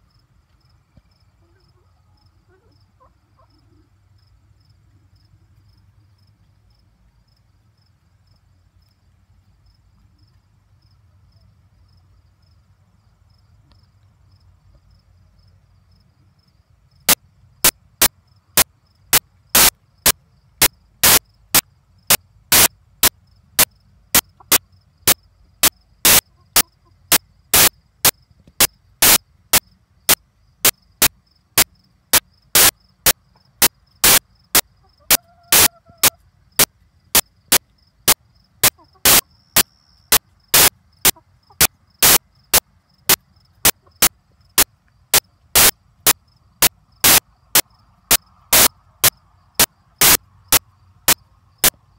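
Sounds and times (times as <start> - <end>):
crickets chirping: 0.0 - 51.9
loud sharp clicks: 17.1 - 22.7, 26.0 - 26.2, 27.5 - 34.6, 37.5 - 45.8, 46.6 - 51.8.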